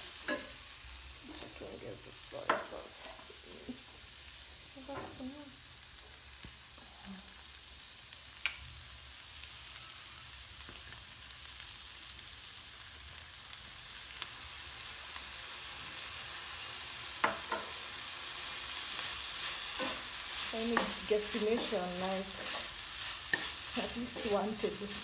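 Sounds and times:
stir-fry sizzling in a pan: 0:00.0 - 0:25.0.

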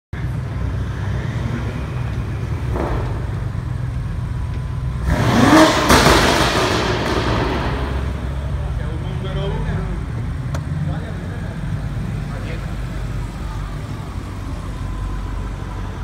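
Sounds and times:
car engine revving: 0:00.4 - 0:13.2
exhaust crack: 0:02.1 - 0:09.2.

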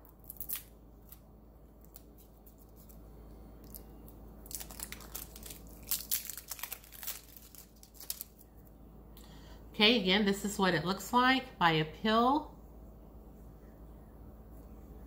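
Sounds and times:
packaging tearing and crinkling: 0:00.0 - 0:01.2, 0:04.4 - 0:08.5.

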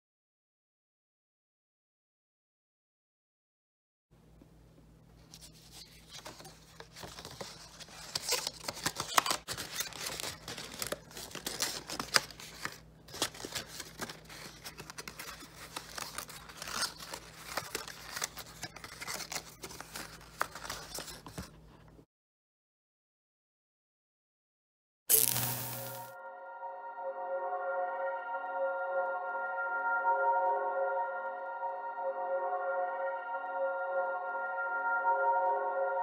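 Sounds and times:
card paper rustling and crinkling: 0:05.2 - 0:21.9, 0:25.1 - 0:26.1.

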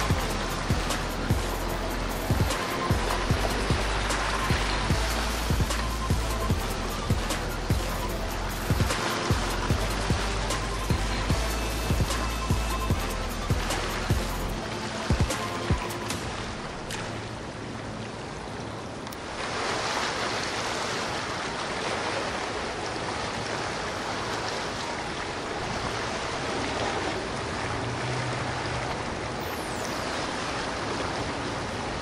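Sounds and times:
water rushing from boat wake: 0:00.0 - 0:32.0.

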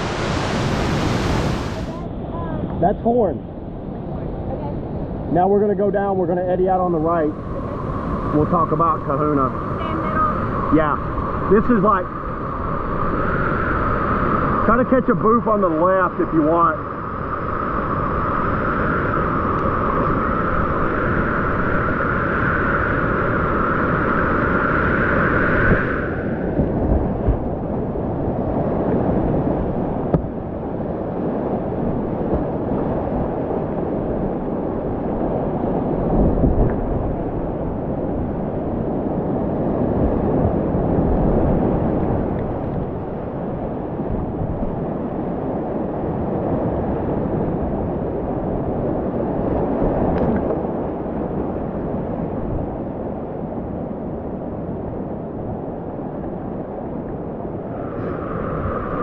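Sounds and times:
high hiss over water: 0:00.0 - 0:02.0, 0:57.6 - 0:59.0
whitewater rushing and splashing: 0:00.0 - 0:02.0.

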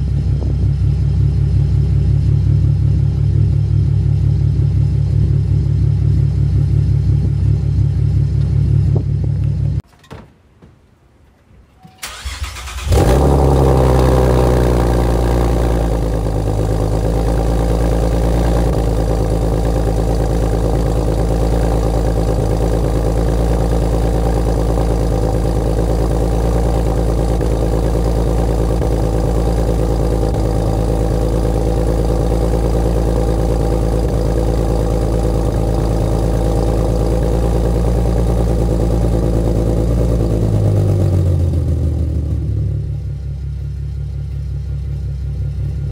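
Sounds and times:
car engine idling and revving: 0:00.0 - 0:09.8, 0:12.0 - 0:45.9.

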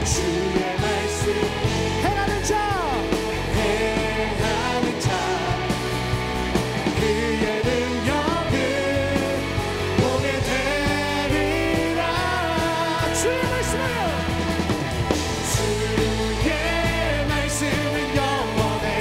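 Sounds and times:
person singing: 0:00.0 - 0:06.0, 0:06.9 - 0:14.4
live rock band playing: 0:00.0 - 0:19.0.

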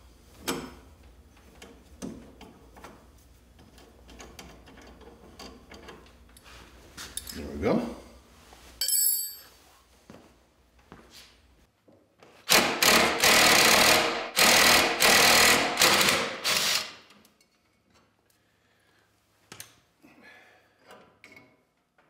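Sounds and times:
impact driver bursts: 0:12.5 - 0:17.0.

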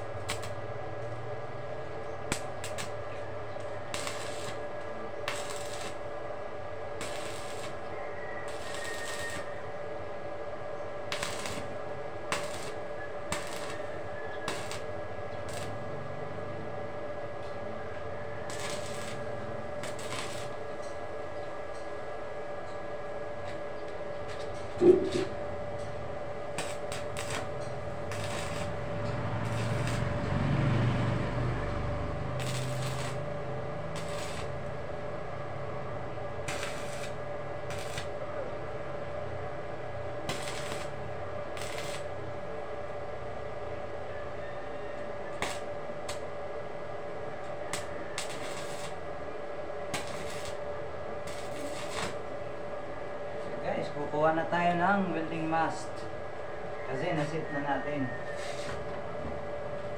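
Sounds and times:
welding arc crackling hiss: 0:00.0 - 0:10.2, 0:11.0 - 0:21.9, 0:24.2 - 0:43.0, 0:45.3 - 0:46.3, 0:47.4 - 0:52.6, 0:58.3 - 0:58.9
steady hum: 0:00.0 - 0:59.9.

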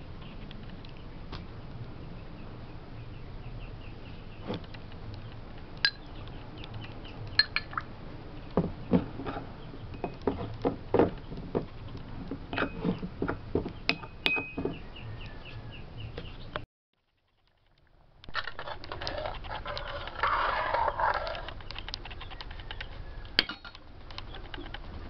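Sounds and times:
metal spoon clinking on ceramic bowl: 0:07.4 - 0:07.8.

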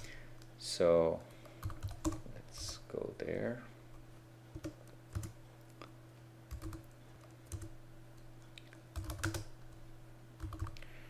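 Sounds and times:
faint steady hum: 0:00.0 - 0:11.0
keyboard typing: 0:01.3 - 0:02.8, 0:04.5 - 0:05.4, 0:06.5 - 0:07.8, 0:08.6 - 0:09.5, 0:10.4 - 0:10.8.

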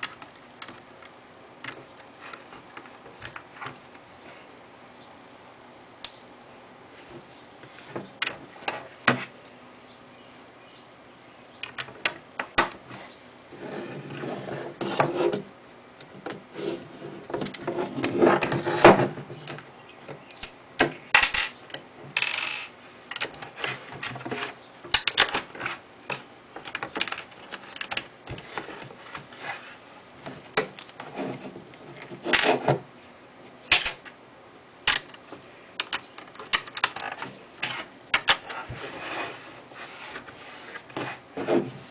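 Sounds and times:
plastic bricks clicking: 0:35.8 - 0:37.2.

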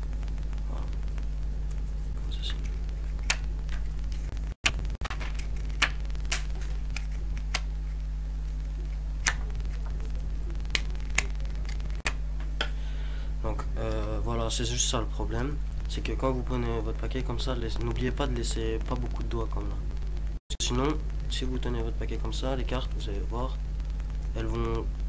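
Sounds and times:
steady electrical hum: 0:00.0 - 0:25.0
playing cards snapping off deck: 0:02.5 - 0:07.7.

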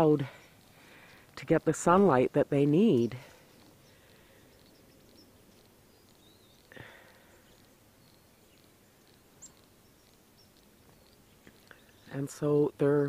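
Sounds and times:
faint outdoor ambience: 0:00.0 - 0:13.0
faint high chirps: 0:03.2 - 0:12.2.

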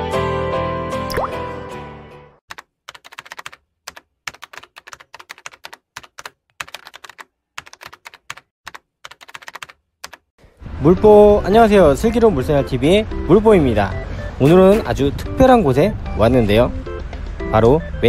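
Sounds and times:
keyboard typing clicks: 0:02.5 - 0:10.2.

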